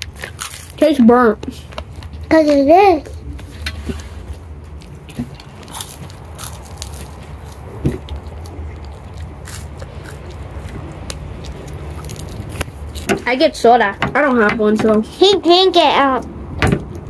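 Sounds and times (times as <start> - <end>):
candy crunching: 0.0 - 13.1
steady low rumble: 0.0 - 17.0.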